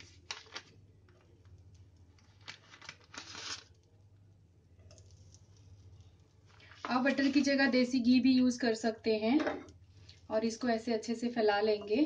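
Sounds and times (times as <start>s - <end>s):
paper wrapper crinkling: 0.0s - 3.9s.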